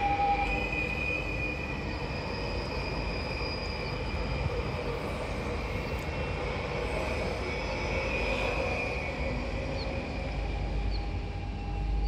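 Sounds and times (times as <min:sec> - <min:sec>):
train rumbling past: 0:00.0 - 0:12.0.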